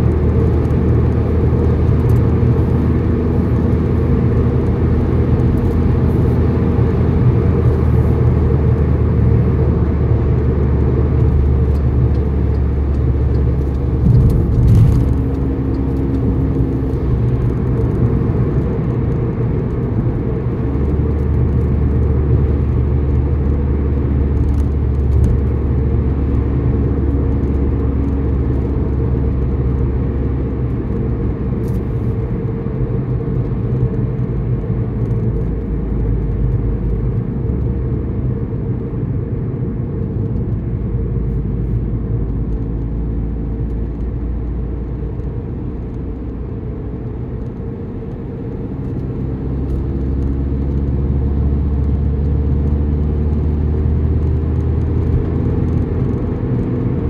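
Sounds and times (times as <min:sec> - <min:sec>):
car engine and road noise: 0:00.0 - 0:57.0.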